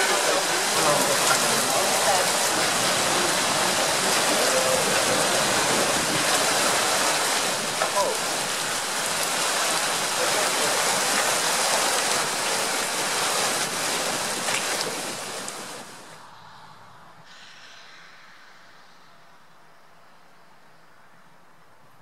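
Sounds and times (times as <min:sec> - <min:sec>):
heavy rain: 0:00.0 - 0:16.3.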